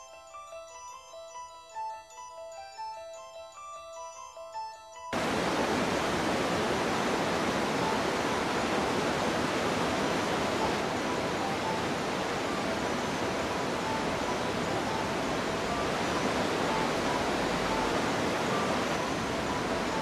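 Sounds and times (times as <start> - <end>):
river rushing: 5.2 - 20.0.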